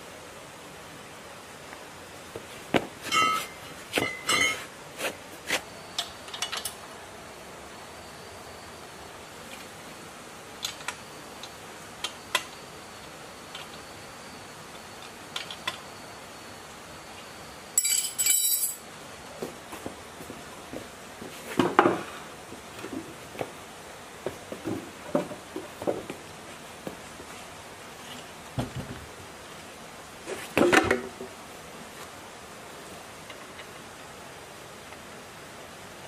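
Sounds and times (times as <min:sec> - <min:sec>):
metal parts clinking: 0:17.8 - 0:18.8.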